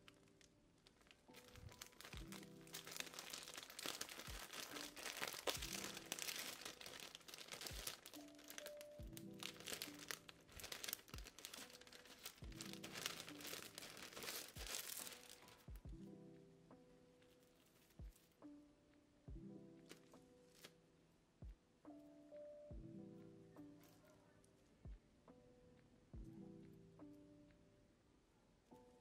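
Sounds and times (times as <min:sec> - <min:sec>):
plastic packaging crinkling: 0:00.0 - 0:15.8
lofi background music: 0:00.0 - 0:29.0.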